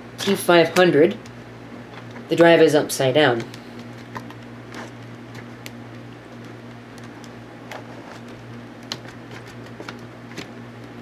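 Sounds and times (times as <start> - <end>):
steady low hum: 0.0 - 11.0
hard drive clicks and scrapes: 3.4 - 10.5.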